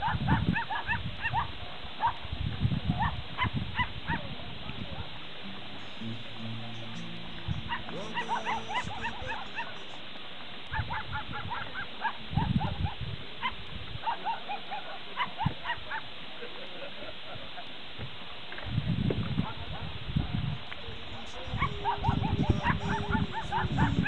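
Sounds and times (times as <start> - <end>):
low steady hum: 1.1 - 12.4
animal yelping: 5.8 - 10.0, 20.8 - 24.0.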